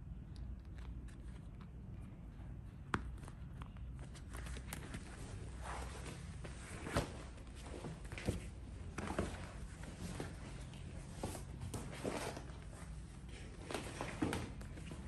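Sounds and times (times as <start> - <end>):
vinyl mattress rustling: 4.0 - 15.0.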